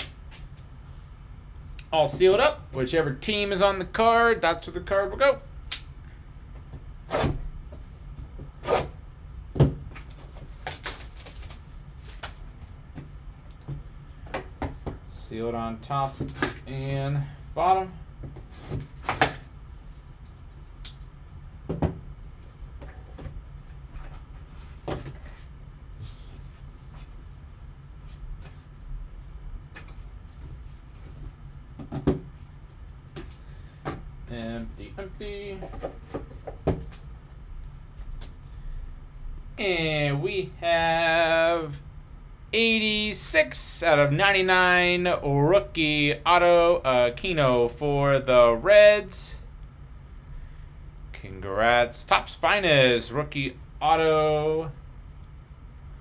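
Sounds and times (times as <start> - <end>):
plastic wrap and cardboard rustling: 10.0 - 12.8.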